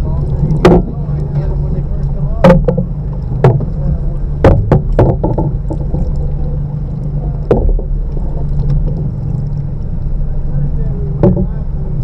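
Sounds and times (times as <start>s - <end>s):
boat motor humming: 0.0s - 12.0s
sharp knocks: 0.6s - 0.9s, 2.4s - 3.8s, 4.4s - 6.1s, 7.5s - 7.9s, 11.2s - 11.6s.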